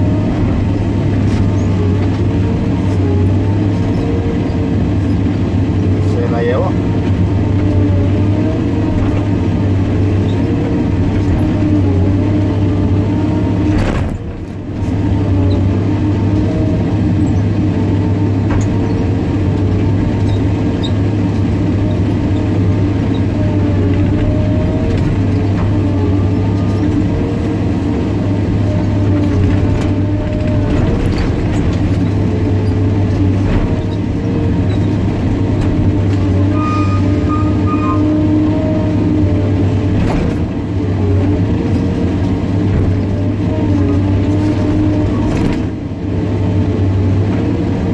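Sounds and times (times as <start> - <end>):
excavator diesel engine running: 0.0 - 47.9
hydraulics whining: 0.0 - 47.9.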